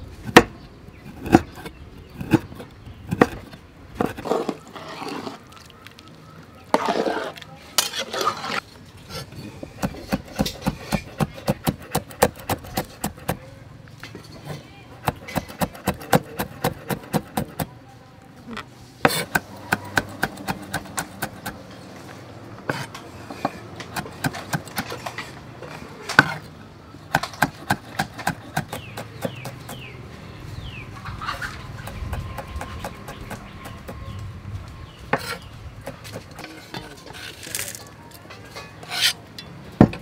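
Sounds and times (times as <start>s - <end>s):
knife chopping on wooden block: 9.8s - 13.4s, 15.0s - 17.7s, 19.0s - 21.6s, 22.7s - 25.2s, 27.1s - 29.9s, 31.4s - 34.2s.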